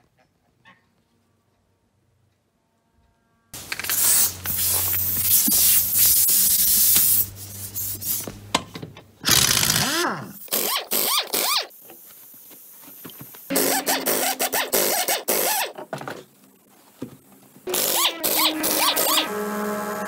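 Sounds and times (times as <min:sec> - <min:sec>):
pneumatic impact wrench: 0:03.6 - 0:08.3, 0:09.2 - 0:11.8, 0:13.5 - 0:15.8, 0:17.7 - 0:19.3.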